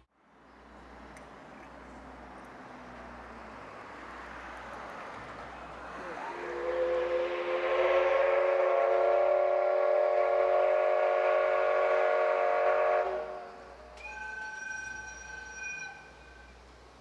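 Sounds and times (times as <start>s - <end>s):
steam whistle blast: 6.1s - 16.6s.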